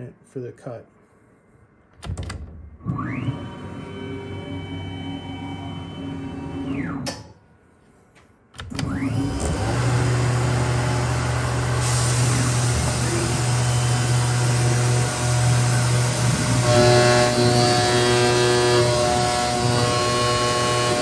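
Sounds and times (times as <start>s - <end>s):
mill spindle motor whine: 2.8s - 7.1s, 8.7s - 21.0s.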